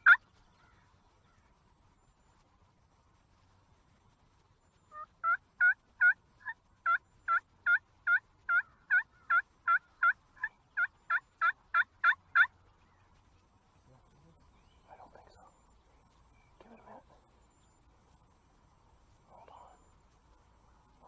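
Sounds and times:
turkey yelping: 0.0s - 0.2s, 4.9s - 12.5s.

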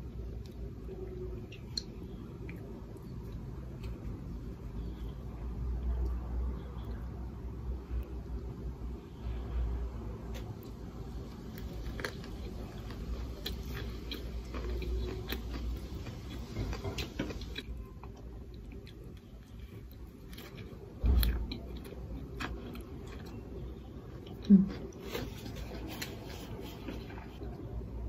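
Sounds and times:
person chewing crisp food: 10.3s - 27.6s.

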